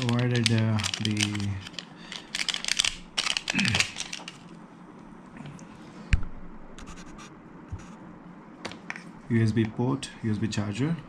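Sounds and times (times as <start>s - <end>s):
cable scratching and rustling: 0.0s - 4.5s.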